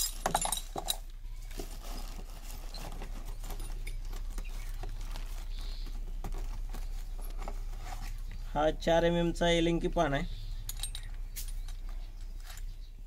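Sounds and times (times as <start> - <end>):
metal tools clinking: 0.0 - 5.0, 10.5 - 12.8.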